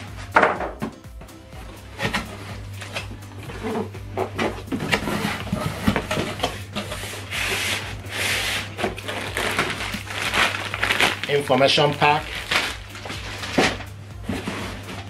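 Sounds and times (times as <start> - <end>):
cardboard flaps rubbing and knocking: 1.6 - 11.2
foam and wrapping scraping: 1.6 - 15.0.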